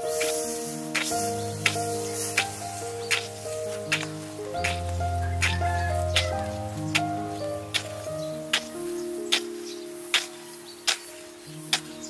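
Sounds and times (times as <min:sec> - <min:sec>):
gentle held music notes: 0:00.0 - 0:12.0
light sharp ticks: 0:01.0 - 0:05.6, 0:10.9 - 0:11.1.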